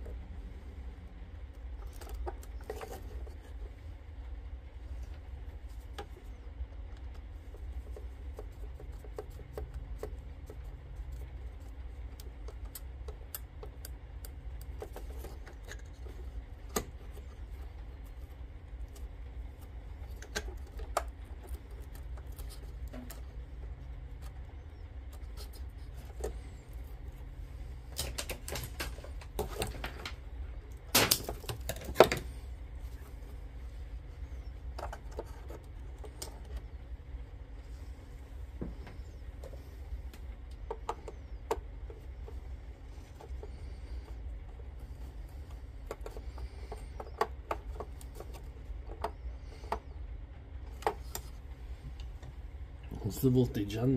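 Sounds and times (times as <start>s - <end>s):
steady low hum: 0.0s - 53.9s
small clicks and taps: 5.1s - 26.9s.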